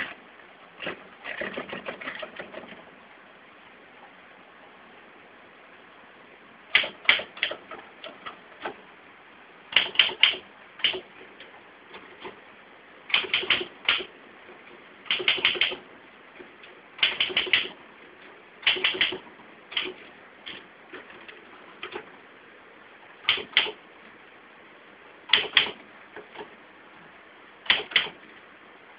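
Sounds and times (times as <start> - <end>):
typewriter keys clacking: 15.1 - 15.8, 17.0 - 17.7.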